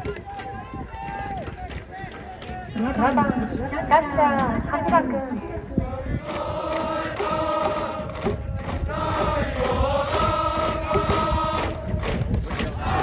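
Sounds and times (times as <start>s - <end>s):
steady beat of sharp knocks: 0.0s - 13.0s
choir singing long held notes: 5.1s - 13.0s.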